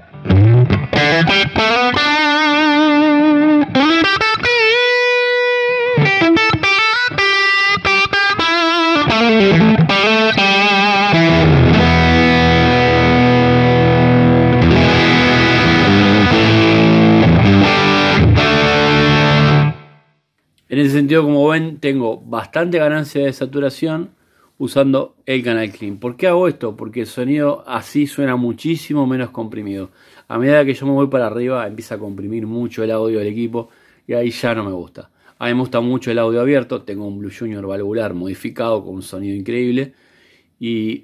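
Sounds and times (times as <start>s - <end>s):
overdriven electric guitar: 0.0s - 20.0s.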